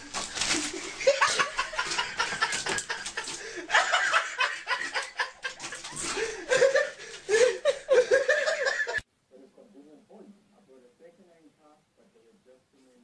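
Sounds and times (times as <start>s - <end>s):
people laughing: 0.0s - 9.0s.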